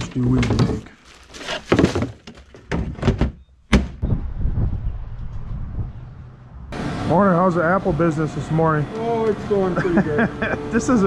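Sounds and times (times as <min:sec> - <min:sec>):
knocks and clattering handling: 0:00.0 - 0:04.0
sharp loud thunk: 0:02.7 - 0:04.0.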